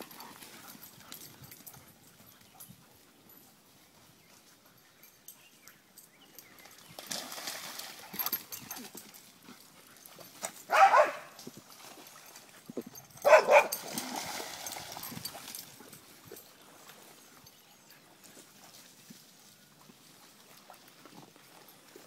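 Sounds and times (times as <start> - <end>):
dog barking: 10.7 - 11.4, 13.2 - 13.8.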